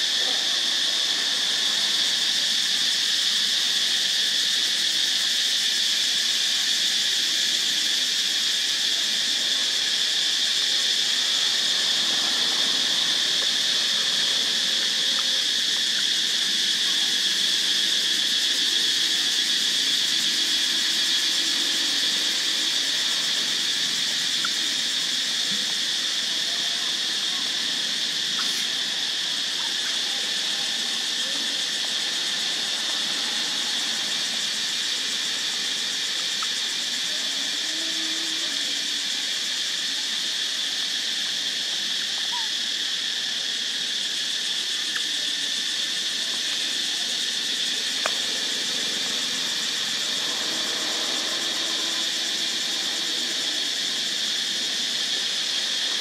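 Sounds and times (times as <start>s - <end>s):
insect chorus drone: 0.0s - 56.0s.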